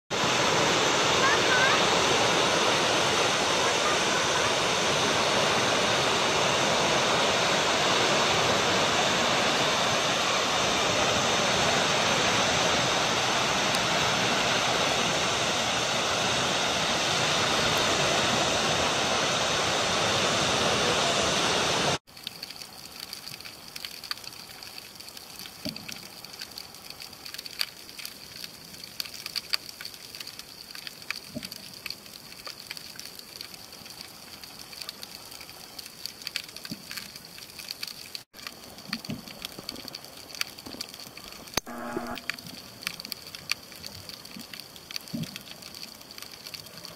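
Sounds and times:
sea and wind rushing: 0.1 - 22.0
small sharp underwater clicks: 22.1 - 46.9.

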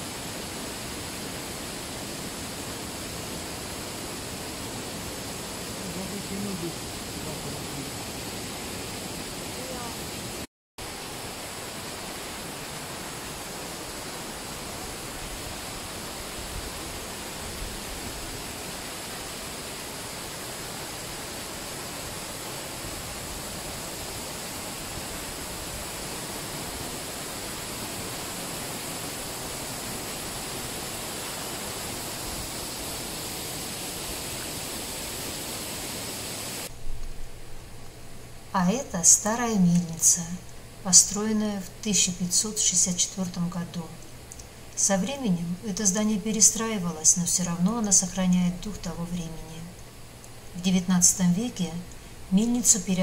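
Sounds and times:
waterfall roaring: 0.0 - 36.8.

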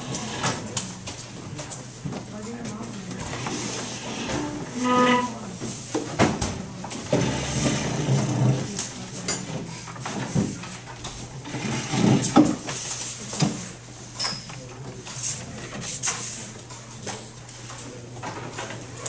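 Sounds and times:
murmur of voices: 0.0 - 13.8.

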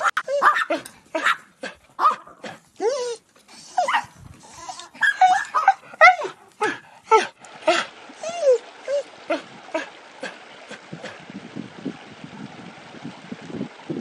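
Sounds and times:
small dogs yapping: 0.0 - 9.5.

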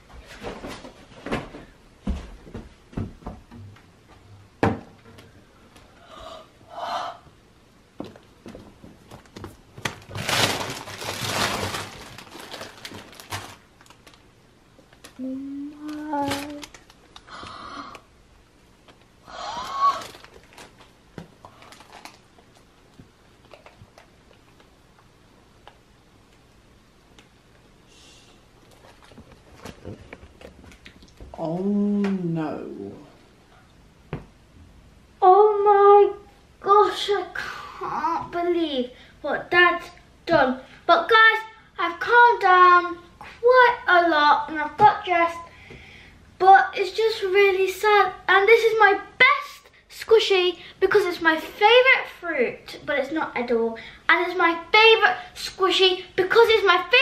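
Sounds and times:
footsteps: 0.0 - 4.2
girl sobbing and wailing: 19.3 - 20.2.

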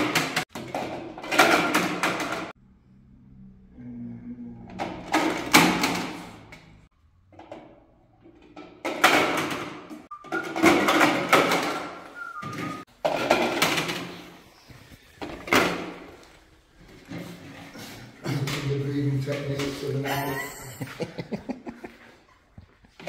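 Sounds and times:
plastic rings clattering into grid: 0.0 - 2.5.

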